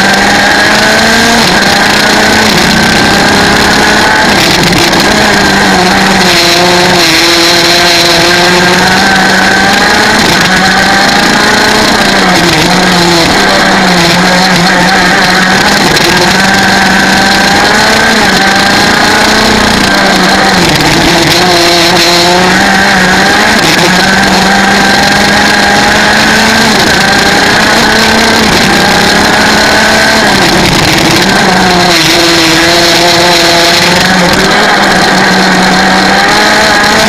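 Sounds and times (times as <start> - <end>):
kart engine revving: 0.0 - 37.0.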